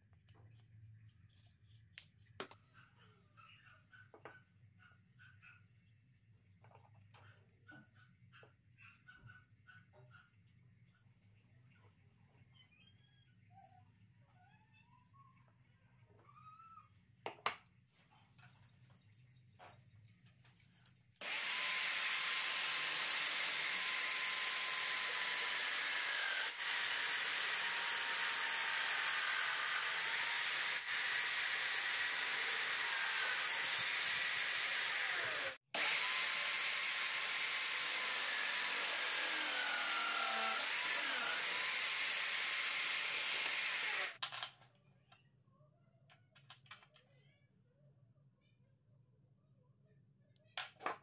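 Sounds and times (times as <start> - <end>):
drill press boring into wood: 21.2 - 44.2.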